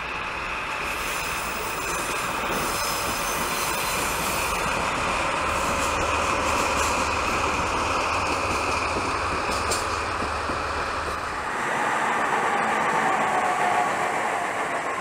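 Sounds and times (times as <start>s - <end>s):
high wheel squeal: 0.9s - 4.8s.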